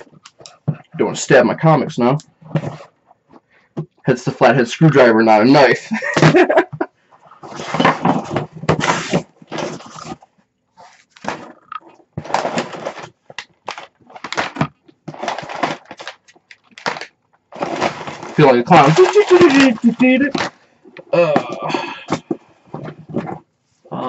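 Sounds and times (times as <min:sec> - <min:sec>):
cardboard box tearing open: 0:07.5 - 0:10.2, 0:14.2 - 0:20.5
packing paper crinkling: 0:12.2 - 0:20.6.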